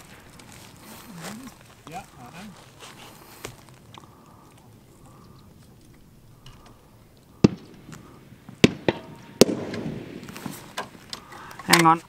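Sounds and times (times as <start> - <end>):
rolling echo: 0.0 - 12.0
rifle shots: 6.7 - 11.8.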